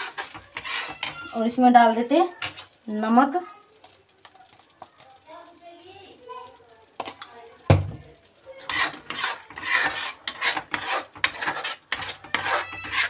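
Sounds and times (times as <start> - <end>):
spatula scraping thick paste: 0.0 - 1.4, 8.7 - 13.0.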